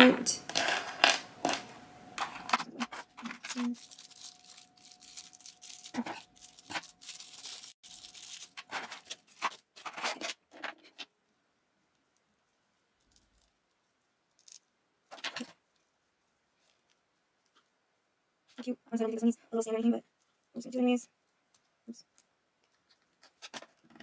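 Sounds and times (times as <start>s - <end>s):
plastic packaging crinkling: 2.3s - 11.0s.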